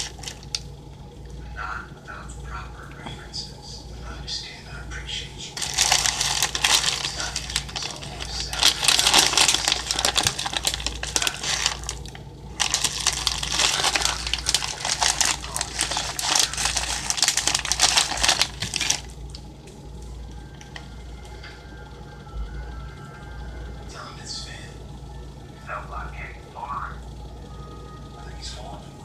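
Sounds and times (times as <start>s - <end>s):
plastic packaging crinkling: 0.0s - 0.7s, 5.5s - 19.4s.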